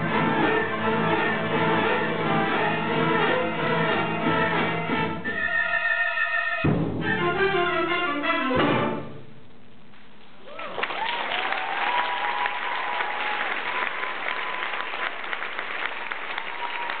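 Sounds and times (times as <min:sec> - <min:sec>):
percussion hit: 0:06.6 - 0:07.4
audience applause: 0:10.4 - 0:17.0
audience cheering: 0:10.4 - 0:17.0.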